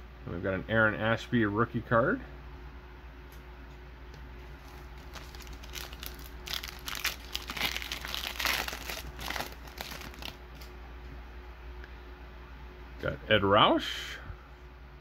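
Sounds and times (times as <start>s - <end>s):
wrapper tearing and crinkling: 4.6s - 10.7s.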